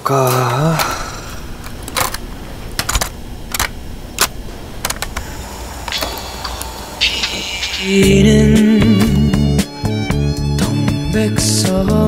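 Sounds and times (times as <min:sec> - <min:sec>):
low background hum: 0:00.0 - 0:10.4
cassette player clicks: 0:00.6 - 0:06.3.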